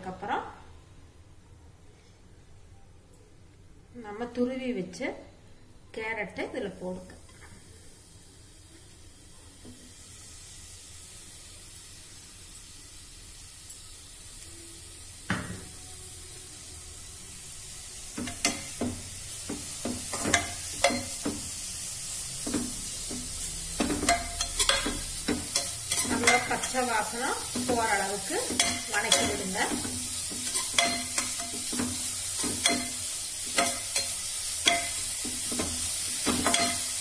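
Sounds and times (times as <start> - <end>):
carrot frying sizzle: 6.0 - 37.0
steel spoon scraping pan: 23.4 - 37.0.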